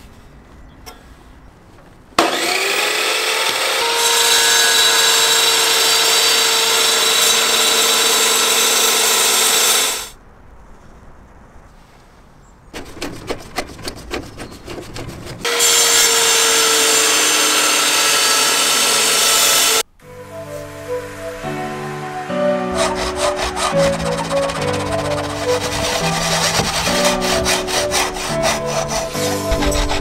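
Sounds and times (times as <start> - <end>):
table saw cutting wood: 2.2 - 10.2, 15.4 - 19.9, 20.6 - 30.0.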